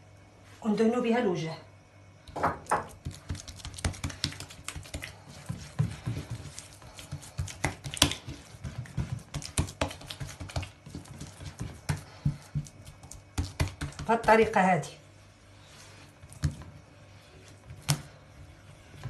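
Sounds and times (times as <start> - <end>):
hand patting dough: 2.6 - 14.8, 16.1 - 16.8, 17.4 - 19.0.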